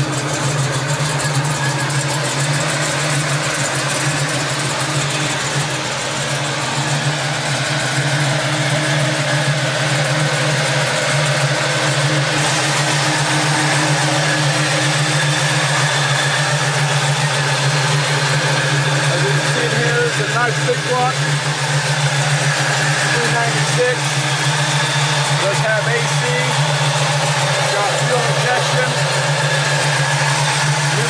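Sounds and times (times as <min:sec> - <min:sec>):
car engine idling: 0:00.0 - 0:31.0.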